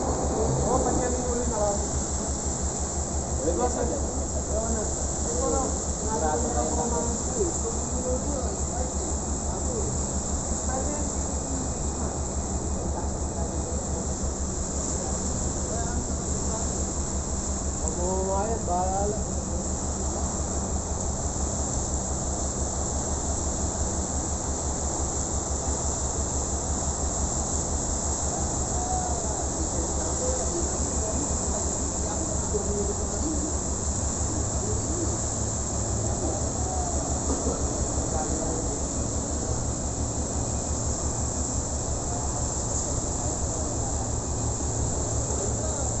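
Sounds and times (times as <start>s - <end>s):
tugboat diesel engines rumbling: 0.0s - 6.2s
constant hiss: 0.0s - 46.0s.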